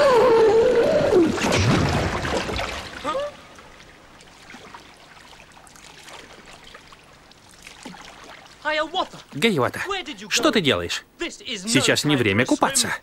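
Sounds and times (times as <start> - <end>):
water rushing: 1.1 - 9.8
water trickling and dripping: 2.2 - 9.8.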